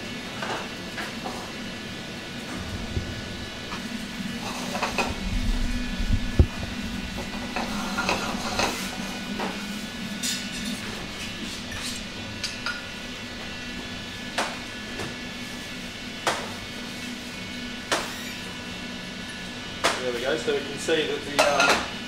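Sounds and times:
steady low hum: 1.5s - 17.8s
utensils scraping and clinking: 10.2s - 12.8s.

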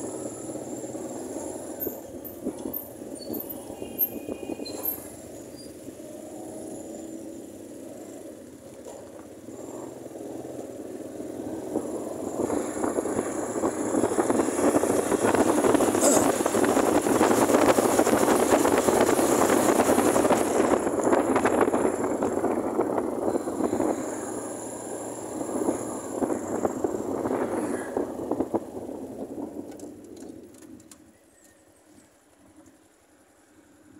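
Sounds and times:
motorcycle engine: 0.0s - 31.0s
wind rushing past microphone: 11.5s - 30.1s.

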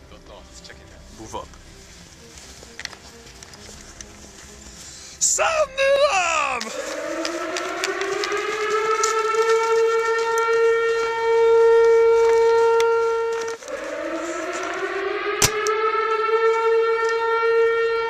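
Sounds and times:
air-raid siren wailing: 5.2s - 18.0s
sharp crack: 15.4s - 15.8s.

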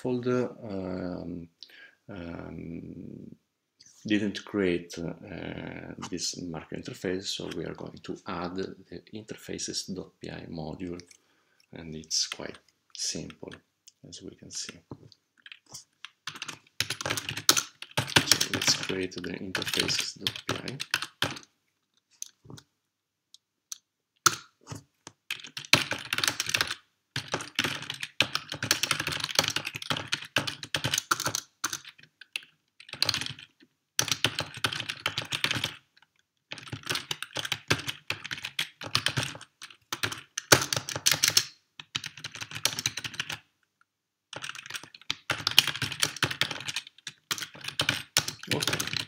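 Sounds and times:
computer keyboard typing: 15.4s - 21.5s, 24.2s - 35.9s, 36.5s - 43.5s, 44.3s - 49.0s.

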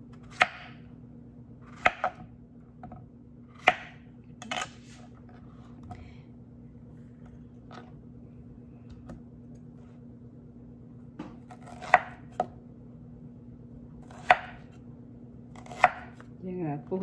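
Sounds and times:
faint steady hum: 0.0s - 17.0s
knife slicing vegetable on board: 0.1s - 0.8s, 1.6s - 2.2s, 3.5s - 5.2s, 11.2s - 12.5s, 14.0s - 14.8s, 15.6s - 16.3s.

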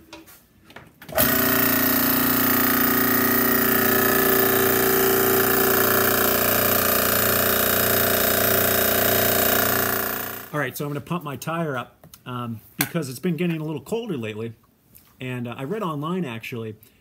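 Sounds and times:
air compressor motor hum: 1.1s - 10.6s
pump pulsing beat: 1.2s - 10.5s.

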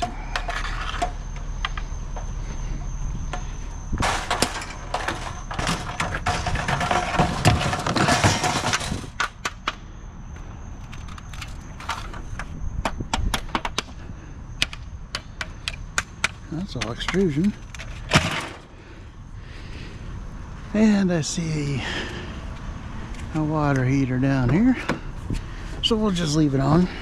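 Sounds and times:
metal rattling and scraping: 0.0s - 2.6s, 3.3s - 9.5s, 16.6s - 18.7s
metal scrap knocking and clanking: 3.3s - 9.6s, 16.0s - 18.7s.

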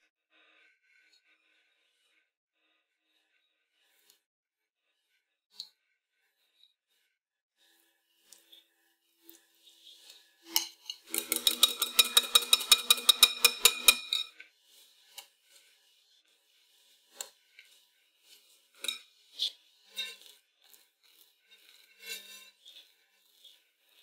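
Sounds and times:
whisk clinking against bowl: 11.0s - 14.3s.

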